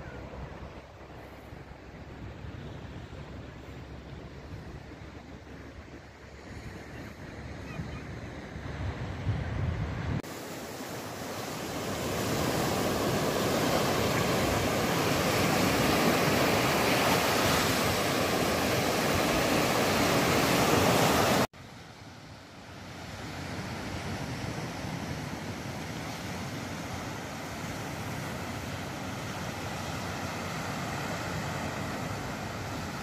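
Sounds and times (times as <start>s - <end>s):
surf breaking on a beach: 0.0s - 33.0s.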